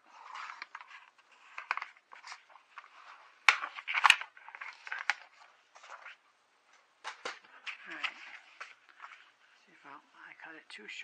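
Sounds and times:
paper rustling: 0:00.0 - 0:06.2, 0:07.0 - 0:09.6.

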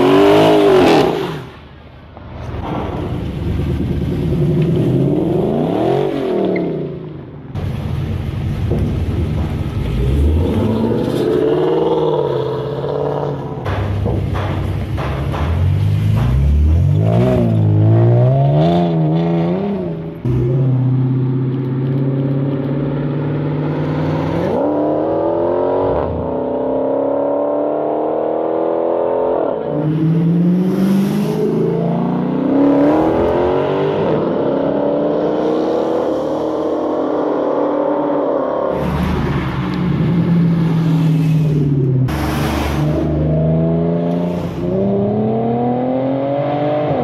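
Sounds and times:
car engine revving: 0:08.0 - 0:47.0
car accelerating through gears: 0:42.1 - 0:47.0.

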